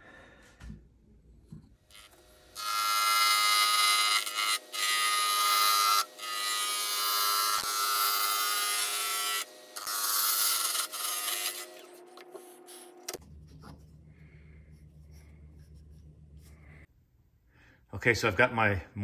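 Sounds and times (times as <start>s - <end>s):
lathe tool cutting wood: 1.9s - 12.7s.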